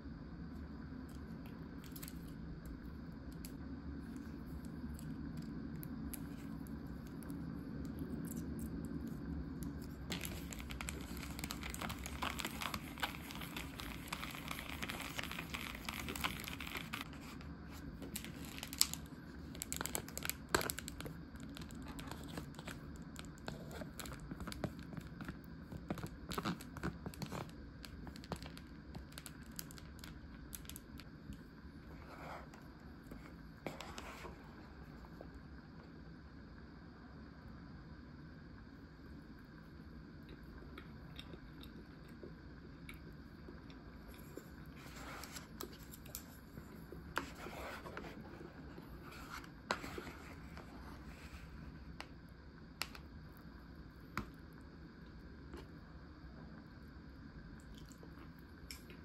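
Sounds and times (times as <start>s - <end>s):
plastic packaging crinkling: 9.8s - 24.9s, 25.9s - 31.1s.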